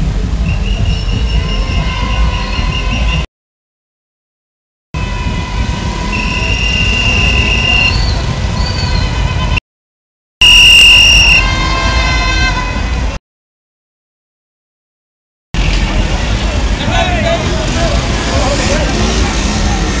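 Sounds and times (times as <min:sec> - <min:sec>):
engine and traffic rumble: 0:00.0 - 0:03.3, 0:05.0 - 0:09.6, 0:15.6 - 0:20.0.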